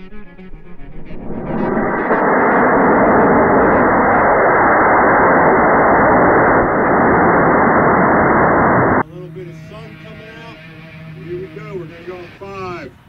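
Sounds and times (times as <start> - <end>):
rocket motor roaring: 0.0 - 9.0.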